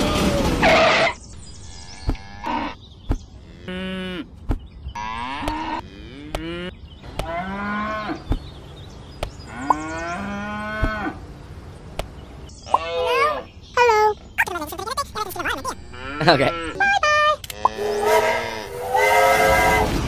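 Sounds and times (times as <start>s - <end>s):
cattle mooing: 3.4s - 4.3s, 5.0s - 8.2s, 9.5s - 11.2s, 15.7s - 16.8s, 17.4s - 19.7s.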